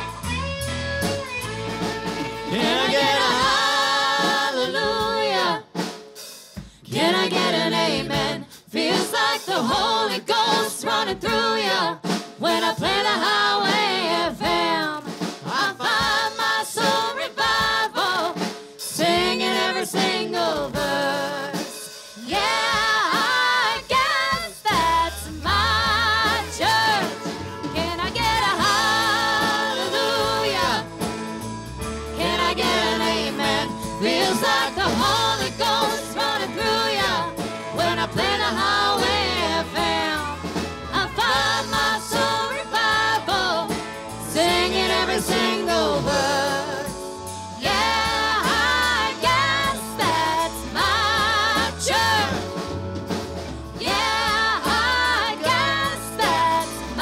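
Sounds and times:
guitars: 0.0s - 4.0s, 24.7s - 57.0s
bass: 0.0s - 57.0s
drums: 0.0s - 57.0s
woman singing: 2.5s - 5.7s, 6.8s - 30.9s, 32.2s - 52.6s, 53.8s - 57.0s.

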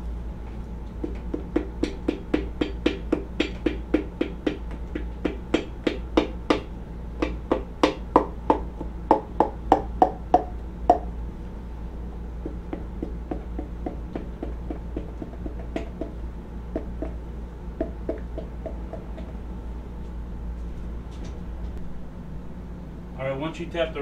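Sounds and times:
mallet handle knocking metal: 1.0s - 11.1s.

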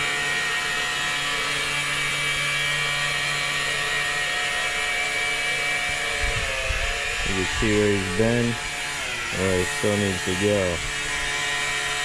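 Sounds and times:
power broom whining: 4.6s - 12.0s
sweeper brushing turf: 6.9s - 12.0s.

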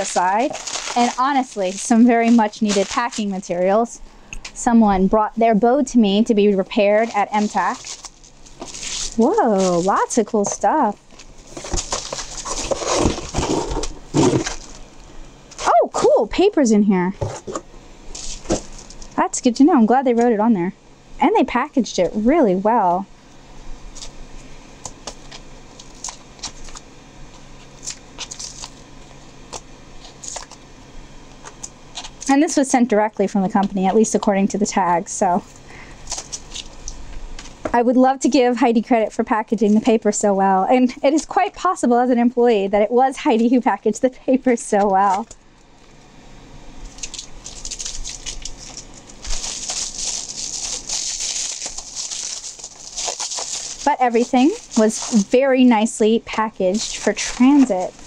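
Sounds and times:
tape peeling off cardboard: 0.0s - 3.3s, 7.0s - 10.0s, 11.2s - 14.9s, 17.5s - 19.2s, 24.8s - 30.6s, 36.0s - 37.0s, 46.8s - 55.4s
packing paper crumpling: 0.0s - 3.9s, 6.5s - 10.4s, 11.0s - 15.8s, 18.1s - 19.2s, 25.1s - 30.6s, 35.9s - 37.0s, 46.8s - 55.4s, 56.6s - 58.0s
bubble-wrapped packages rustling: 0.0s - 4.0s, 6.1s - 15.8s, 18.1s - 19.2s, 25.1s - 30.6s, 35.8s - 37.6s, 46.8s - 55.4s, 56.6s - 58.0s.

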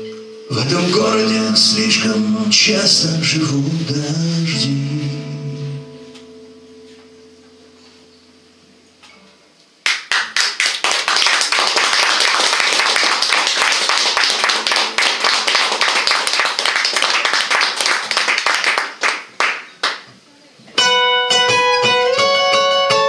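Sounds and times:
audience applauding: 9.8s - 20.1s.

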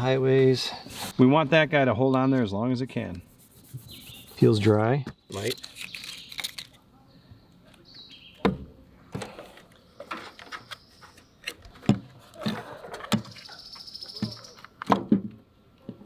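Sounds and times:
scratchy rustle: 3.2s - 4.7s.

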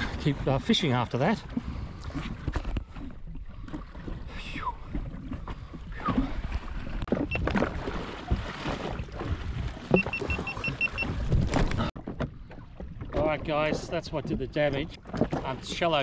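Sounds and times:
water and wind noise: 0.0s - 16.0s
knocks and clunks: 9.9s - 16.0s.

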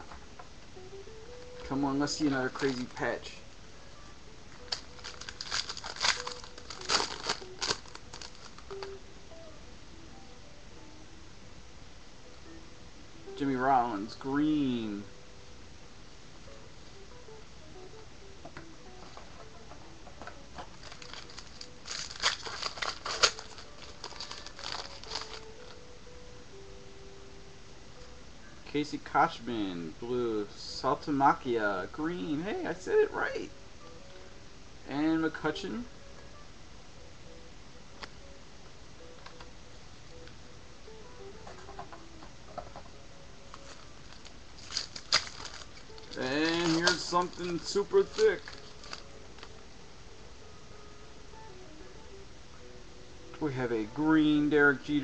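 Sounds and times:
faint tune: 0.0s - 55.0s
foil wrapper crinkling: 1.6s - 3.3s, 4.6s - 9.0s, 20.6s - 25.8s, 43.5s - 49.5s
foil wrapper tearing: 2.5s - 3.1s, 4.6s - 8.9s, 20.8s - 25.8s, 43.5s - 49.5s.

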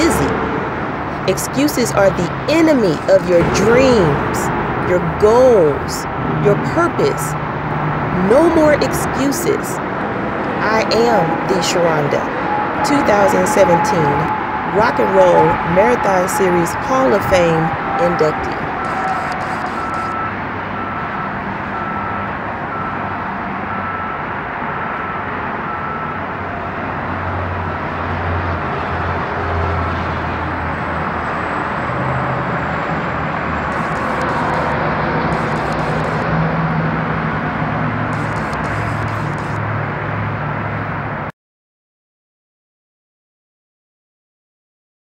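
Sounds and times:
highway traffic: 0.0s - 41.3s
faint beep: 18.3s - 23.1s, 33.7s - 34.7s, 35.3s - 36.2s, 38.1s - 39.6s.

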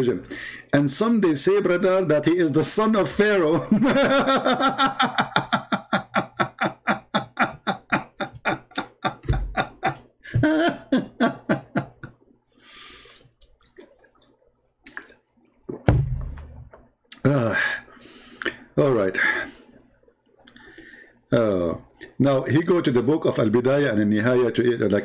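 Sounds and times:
man laughing hard: 3.7s - 12.1s
breath in: 12.5s - 13.3s, 20.6s - 21.2s.

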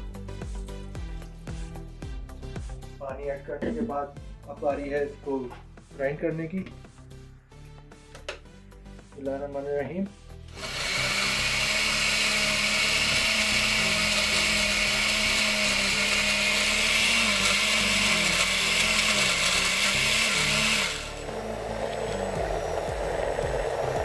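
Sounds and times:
mixer grinder running: 10.5s - 24.0s.

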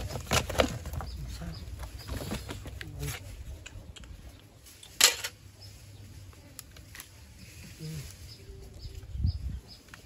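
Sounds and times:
cardboard box rustling: 0.0s - 2.8s.

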